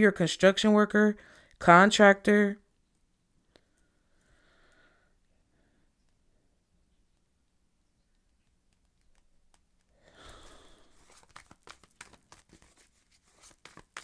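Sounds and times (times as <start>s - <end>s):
cards shuffling: 8.8s - 14.0s.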